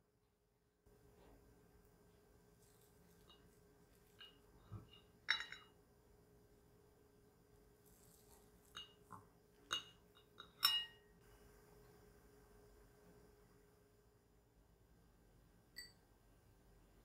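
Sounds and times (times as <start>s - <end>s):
cutlery clinking on ceramic plate: 3.1s - 5.8s, 8.6s - 11.1s.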